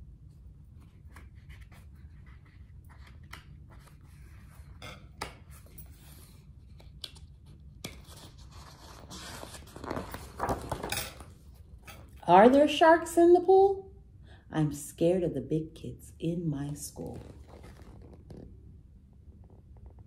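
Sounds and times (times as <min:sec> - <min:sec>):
low steady hum: 0:00.0 - 0:20.0
paper pages rustling: 0:05.4 - 0:11.5, 0:17.0 - 0:18.5.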